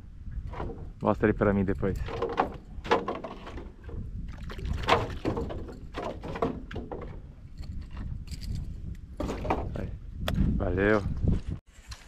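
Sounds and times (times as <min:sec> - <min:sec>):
knocks and clatter on boat: 0:00.4 - 0:01.2, 0:01.8 - 0:10.0.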